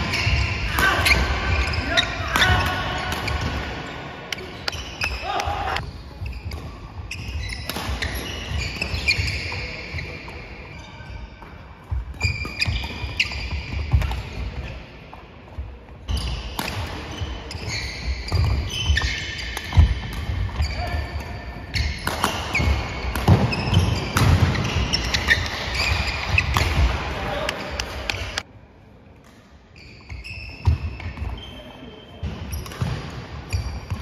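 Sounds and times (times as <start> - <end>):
shoes squeaking on court: 0.0 - 28.4, 29.7 - 34.0
rackets striking shuttlecock: 18.3 - 28.4.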